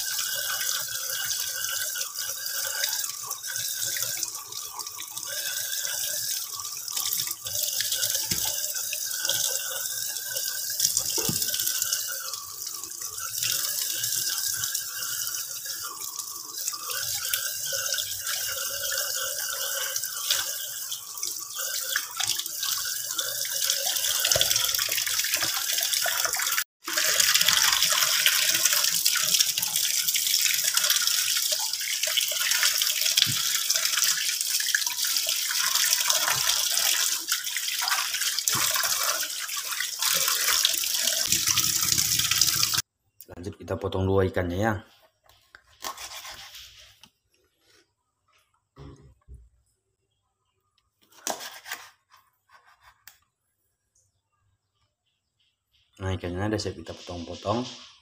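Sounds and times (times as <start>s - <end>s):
tap water running into steel sink: 0.0s - 42.8s.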